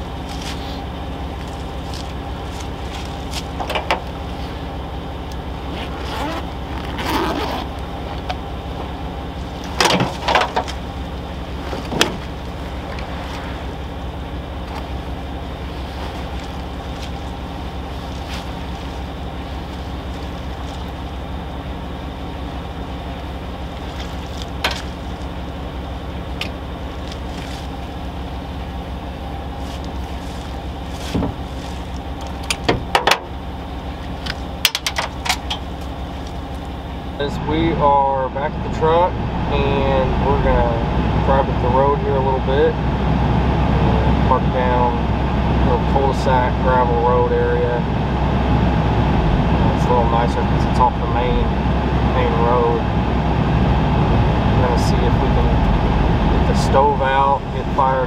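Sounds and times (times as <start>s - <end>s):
pickup truck engine idling: 0.0s - 58.0s
gear knocking in truck bed: 1.4s - 4.2s, 9.6s - 11.0s, 11.6s - 13.1s, 23.8s - 25.3s, 29.8s - 33.4s.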